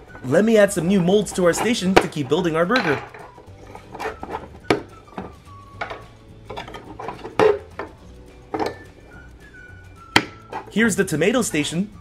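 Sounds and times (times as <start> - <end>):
plastic molds clicking and knocking: 0.9 - 9.2, 10.0 - 10.8.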